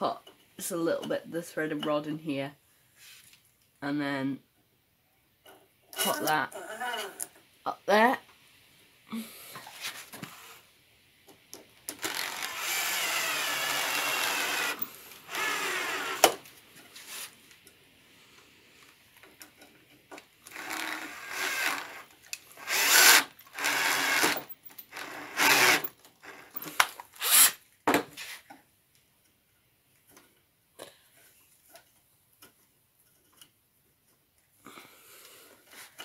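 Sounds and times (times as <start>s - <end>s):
cordless drill driving screws: 11.9s - 16.4s, 20.5s - 27.6s
drill clicks: 11.9s - 16.4s, 20.5s - 27.5s.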